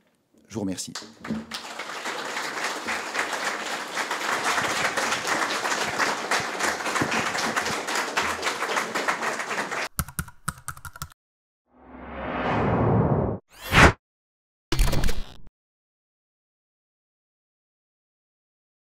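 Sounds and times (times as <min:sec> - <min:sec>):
audience applauding: 0:01.0 - 0:09.9
whoosh: 0:11.8 - 0:14.0.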